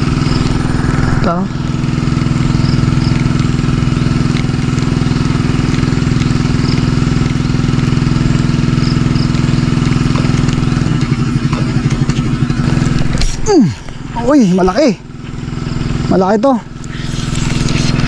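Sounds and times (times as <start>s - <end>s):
small engine idling: 0.0s - 18.0s.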